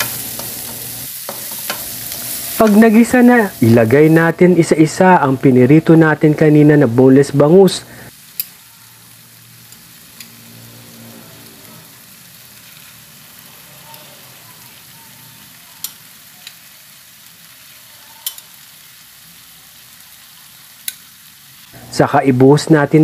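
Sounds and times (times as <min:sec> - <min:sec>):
food sizzling in a wok: 0:00.0 - 0:23.0
metal spatula clicking on pan: 0:15.8 - 0:16.6, 0:18.2 - 0:18.5, 0:20.8 - 0:21.0.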